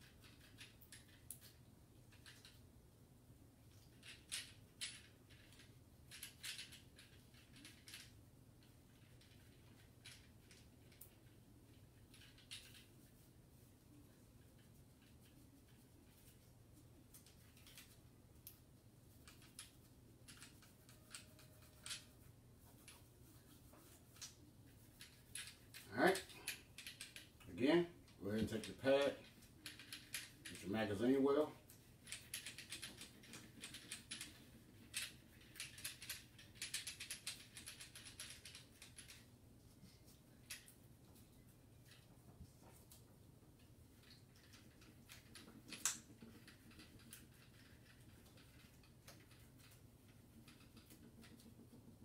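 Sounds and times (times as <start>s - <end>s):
scratchy wiping strokes: 20.4s - 25.3s.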